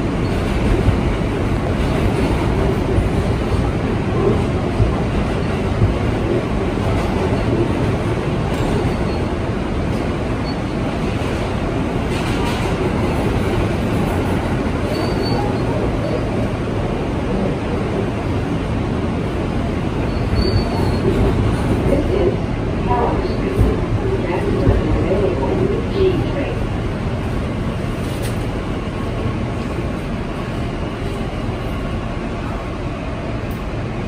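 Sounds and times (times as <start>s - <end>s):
subway car wheels rumbling: 0.0s - 34.0s.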